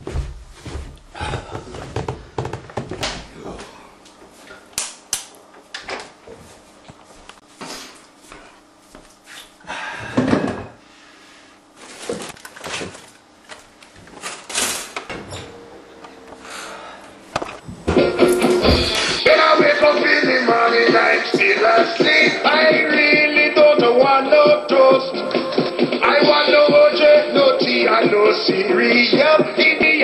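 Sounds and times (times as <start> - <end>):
doors and cupboards knocking: 1.9 - 3.3, 17.7 - 19.2
plastic bag rustling: 11.8 - 14.6.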